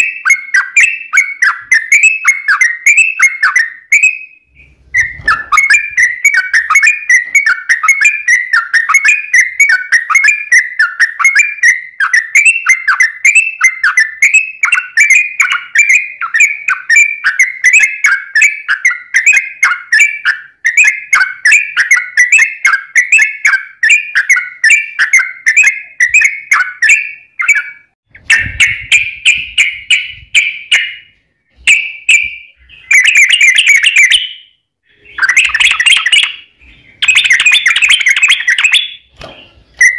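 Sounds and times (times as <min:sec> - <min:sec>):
bird singing bubbly whistled notes: 0:00.0 - 0:39.9
bird chattering bursts: 0:34.9 - 0:39.1.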